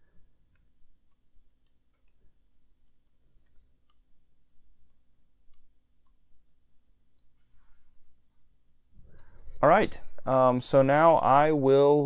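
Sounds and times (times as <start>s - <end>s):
small clicks from keyboard switches: 0.5s - 7.8s.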